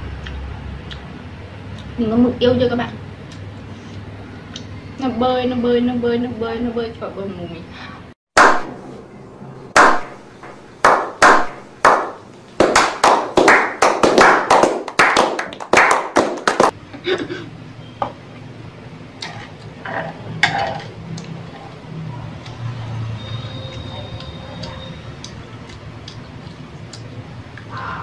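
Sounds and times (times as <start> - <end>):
men clapping: 9.8 - 10.0, 10.8 - 16.8.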